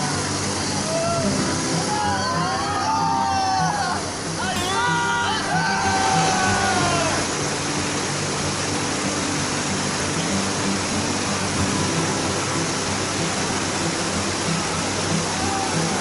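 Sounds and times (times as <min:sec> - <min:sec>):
whitewater rapids rushing: 0:00.0 - 0:16.0.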